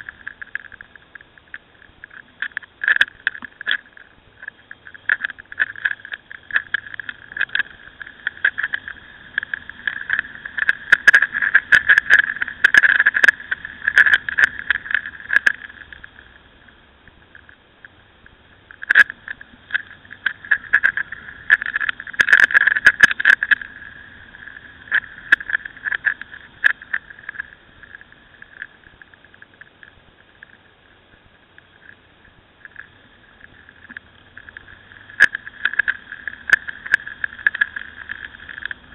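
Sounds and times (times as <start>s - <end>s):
wind buffeting on camera: 0.0s - 30.6s
faint motorcycle engine: 0.0s - 38.9s.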